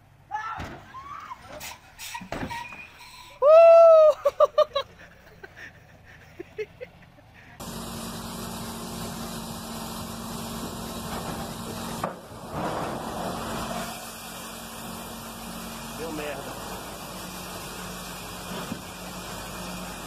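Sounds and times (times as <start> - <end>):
truck engine humming: 4.2 - 20.0.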